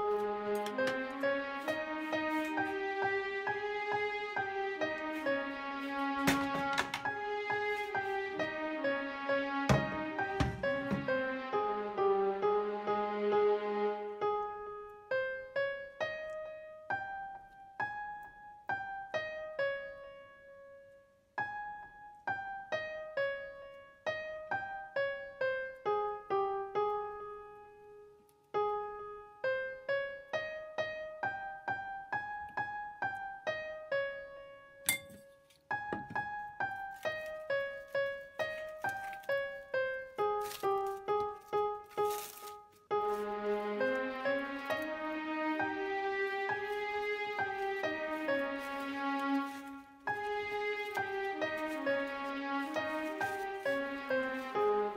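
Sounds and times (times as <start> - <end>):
slow piano melody: 0.0 - 54.9
brief rustling: 40.4 - 43.3.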